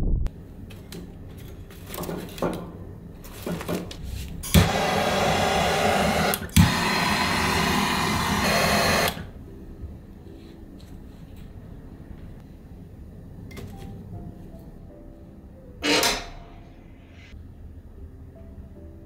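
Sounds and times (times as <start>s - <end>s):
gas torch click: 4.4s - 9.3s
loud hiss of torch flame: 4.4s - 9.3s.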